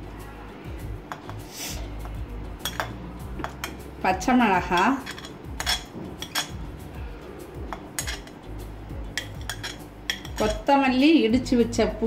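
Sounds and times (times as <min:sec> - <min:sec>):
metal spoon clinking on plate: 0:01.1 - 0:01.4, 0:02.6 - 0:03.8, 0:04.7 - 0:06.6, 0:07.7 - 0:08.4, 0:09.1 - 0:10.7.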